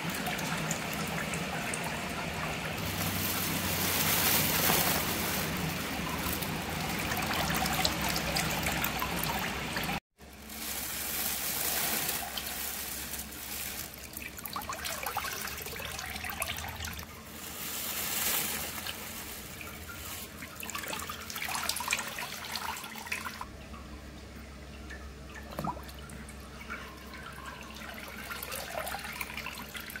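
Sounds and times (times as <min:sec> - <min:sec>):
water running off object: 0:00.0 - 0:23.3
water sloshing in a tank: 0:00.0 - 0:30.0.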